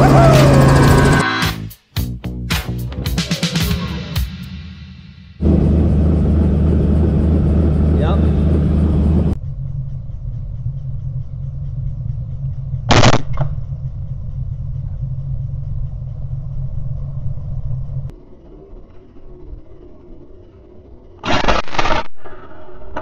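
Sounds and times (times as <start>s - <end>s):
helicopter low rumble: 0.0s - 1.2s, 5.4s - 21.2s
loud gunshot: 12.9s - 13.4s.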